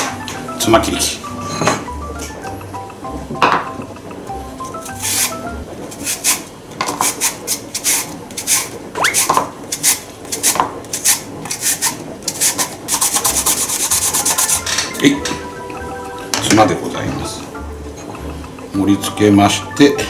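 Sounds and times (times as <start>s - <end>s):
radish rasping on slicer: 7.0s - 14.6s.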